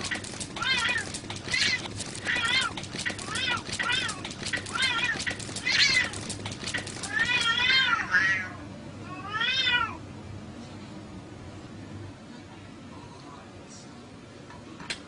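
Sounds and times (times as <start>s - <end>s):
sharp clicks: 0.0s - 7.6s
cats yowling: 0.0s - 10.0s.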